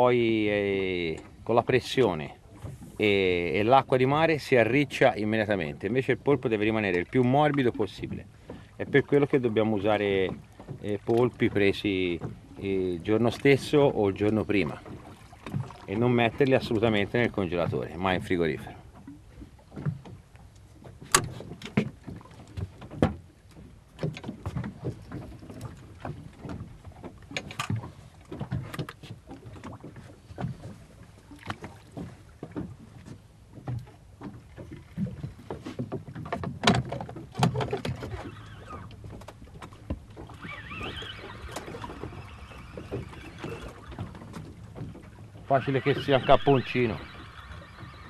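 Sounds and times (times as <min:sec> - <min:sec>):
fishing gear knocks and clicks: 0:24.0 - 0:30.7, 0:31.5 - 0:38.3.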